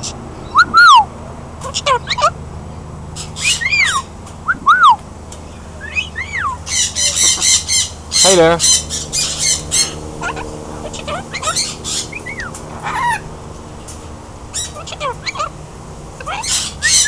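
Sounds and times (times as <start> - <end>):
cockatoo whistling: 0.0 - 1.1, 3.2 - 5.0, 5.8 - 13.3, 16.2 - 17.0
cockatoo squawking: 0.0 - 2.4, 3.1 - 17.0.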